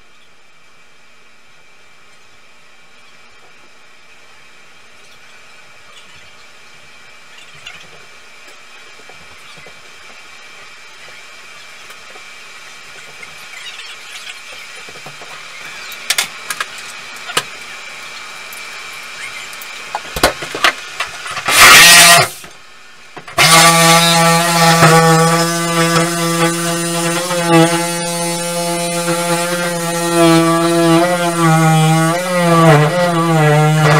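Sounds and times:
reciprocating saw cutting plastic: 18.6s - 22.6s, 23.3s - 33.9s.

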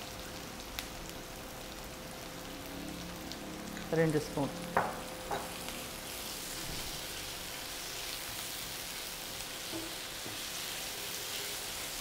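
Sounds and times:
food sizzling in oil: 0.0s - 12.0s.

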